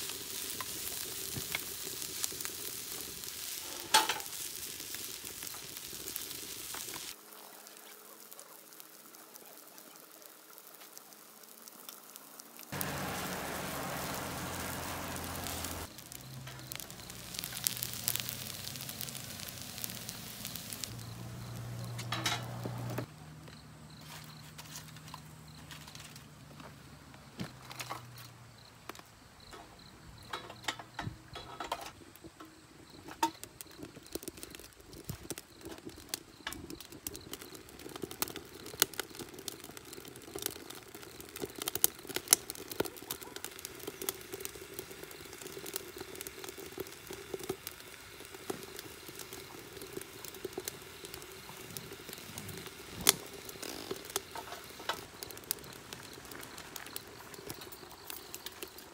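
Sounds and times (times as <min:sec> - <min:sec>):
wood fire crackling and popping: 0:00.0 - 0:29.6, 0:30.2 - 0:58.9
stove low hum: 0:12.8 - 0:23.1.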